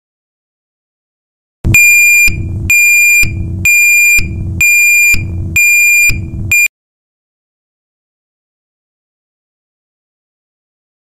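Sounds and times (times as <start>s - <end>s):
low rumbling noise: 1.7s - 6.7s
reverse alarm beeps: 1.7s - 6.7s.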